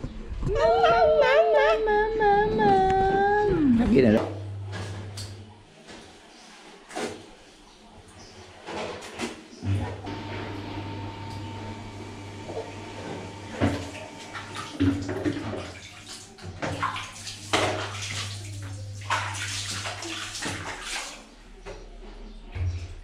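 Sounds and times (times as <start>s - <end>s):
water splashing in plastic basin: 13.6s - 21.6s.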